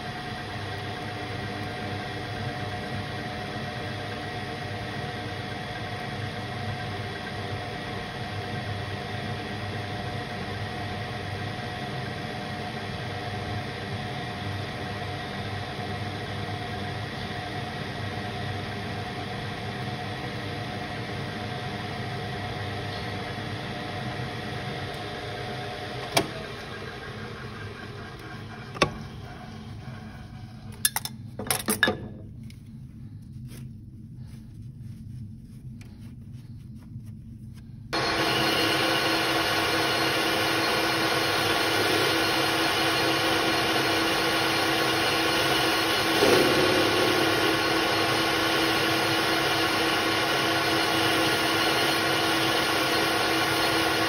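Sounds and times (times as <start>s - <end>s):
lathe running: 25.3s - 30.6s, 38.0s - 54.0s
tool cutting metal: 41.6s - 52.5s.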